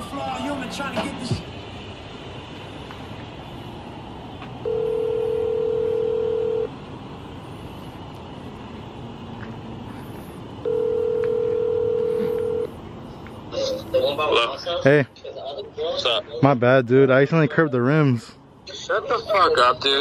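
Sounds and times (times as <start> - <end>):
telephone ringback tone: 4.6 - 6.7, 10.6 - 12.7.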